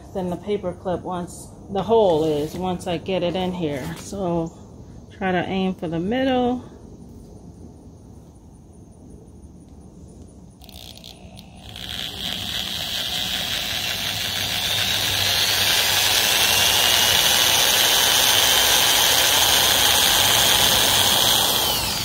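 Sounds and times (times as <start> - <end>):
electric drill whining into wood: 10.6 - 22.0.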